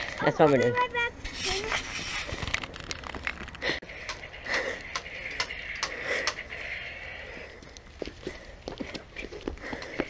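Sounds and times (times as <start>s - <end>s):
footsteps on pavement: 7.3s - 10.0s.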